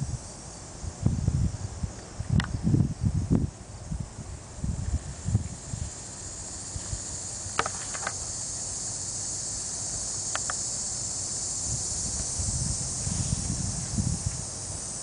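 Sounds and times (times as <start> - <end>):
insects hissing: 0.0 - 15.0.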